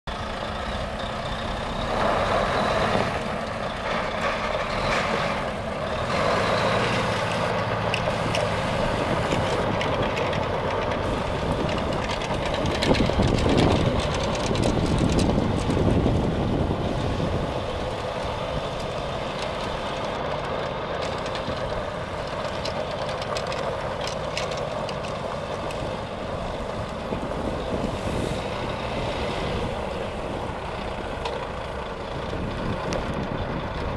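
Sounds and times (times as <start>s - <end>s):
truck diesel engine running: 0.1s - 33.9s.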